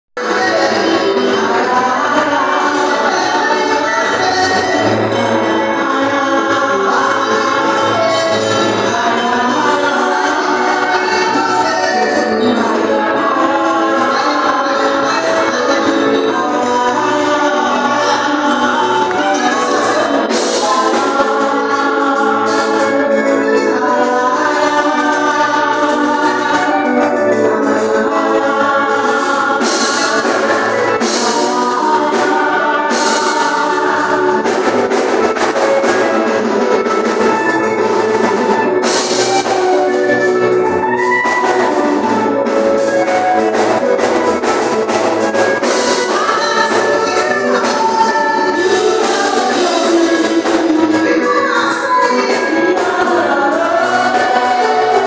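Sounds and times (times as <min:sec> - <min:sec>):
congregation singing: 0:00.2 - 0:55.0
instrumental accompaniment: 0:00.2 - 0:55.0.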